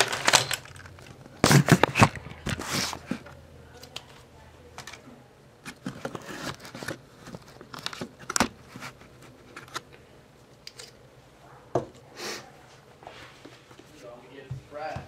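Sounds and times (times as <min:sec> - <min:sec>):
paper cup crinkling: 0:00.0 - 0:03.2, 0:05.6 - 0:09.9.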